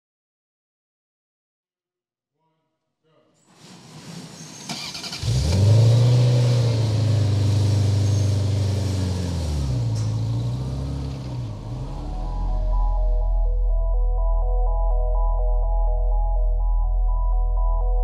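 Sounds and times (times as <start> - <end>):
sports car engine revving: 3.8 - 13.6.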